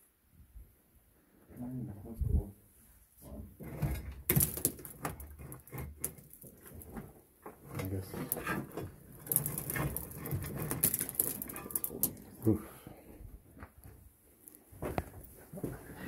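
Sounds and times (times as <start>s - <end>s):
scrapes and knocks on rock: 3.6s - 12.4s.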